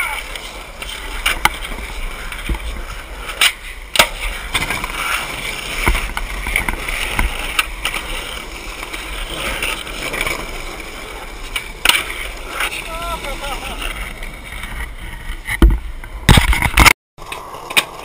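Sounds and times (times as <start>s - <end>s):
skateboard clacking on ground: 0.0s - 18.0s
skateboard wheels rolling on asphalt: 0.0s - 18.0s.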